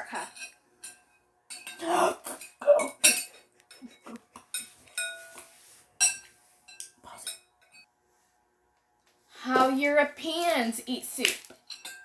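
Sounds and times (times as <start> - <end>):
metal spoon clinking on bowl: 0.1 - 5.4, 11.6 - 12.0.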